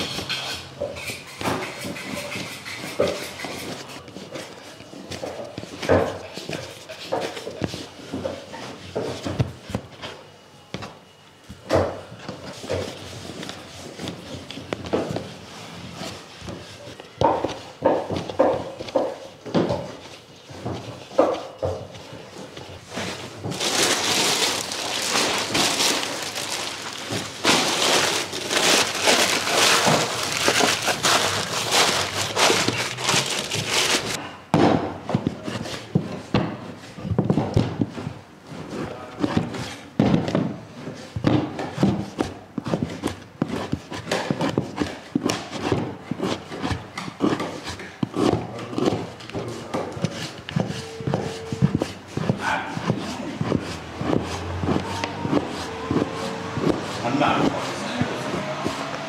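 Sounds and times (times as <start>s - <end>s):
knife chopping on wooden board: 41.2s - 59.0s.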